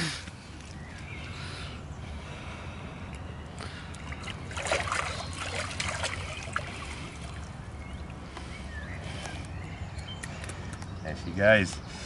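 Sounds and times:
water splashing: 0:04.0 - 0:08.3.

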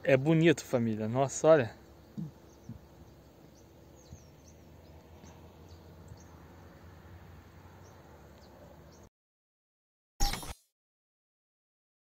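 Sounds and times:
birds chirping: 0:00.0 - 0:09.1.

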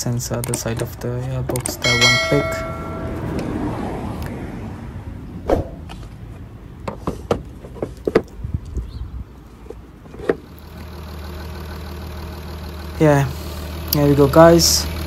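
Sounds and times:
car parts clicking and knocking: 0:00.0 - 0:03.6, 0:05.6 - 0:10.5
low steady hum: 0:01.8 - 0:03.6.

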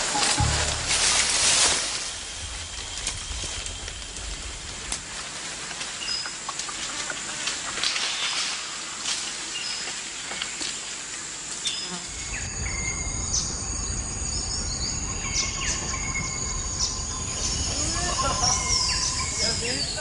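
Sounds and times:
low rumble: 0:00.0 - 0:06.0, 0:12.1 - 0:20.0
insects buzzing and trilling: 0:00.0 - 0:20.0.

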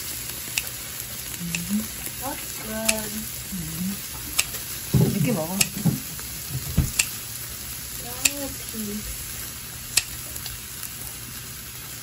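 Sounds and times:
meat sizzling on grill: 0:00.0 - 0:12.0
tongs clicking on grill plate: 0:00.5 - 0:01.8, 0:02.5 - 0:03.2, 0:04.4 - 0:04.7, 0:05.6 - 0:06.2, 0:06.9 - 0:07.2, 0:08.2 - 0:08.5, 0:09.9 - 0:10.6.

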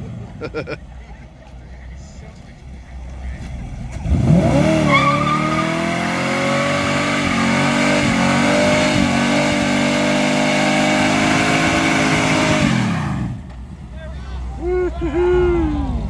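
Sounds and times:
tyres squealing on asphalt: 0:01.8 - 0:09.4
car engine revving hard: 0:03.9 - 0:13.4.

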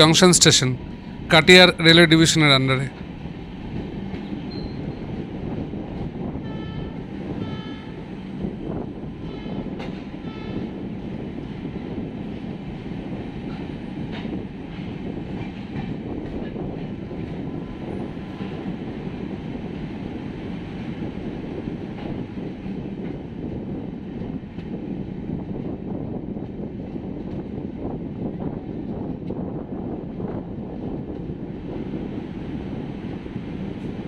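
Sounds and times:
train wheels rumbling on track: 0:00.0 - 0:34.0.

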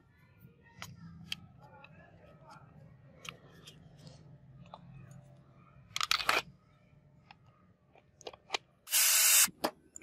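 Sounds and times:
plastic parts clicking and clattering: 0:05.9 - 0:06.6, 0:07.2 - 0:08.8.

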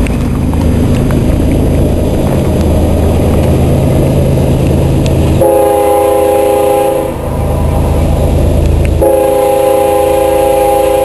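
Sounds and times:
low rumble: 0:00.0 - 0:11.0
locomotive air horn chord: 0:05.4 - 0:07.3, 0:09.0 - 0:11.0.

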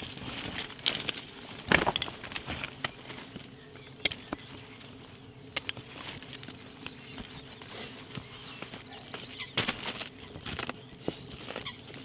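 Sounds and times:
shifting on gravel: 0:00.0 - 0:03.5, 0:08.3 - 0:12.0.

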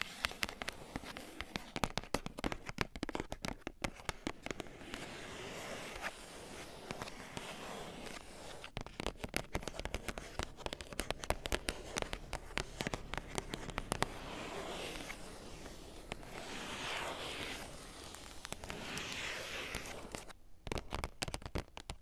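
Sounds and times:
fingernails scratching packaging: 0:04.9 - 0:20.3
fingernails tapping packaging: 0:20.1 - 0:22.0.

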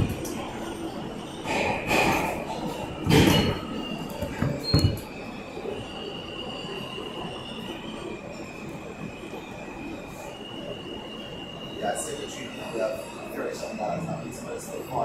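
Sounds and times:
train knocks: 0:00.0 - 0:00.4, 0:01.4 - 0:05.1
subway train rattling in tunnel: 0:00.0 - 0:15.0
high-pitched wheel squeal: 0:03.3 - 0:07.6.

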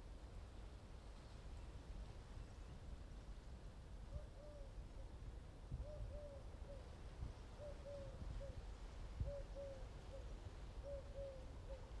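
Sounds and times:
dove cooing: 0:07.6 - 0:08.6, 0:09.2 - 0:11.9.

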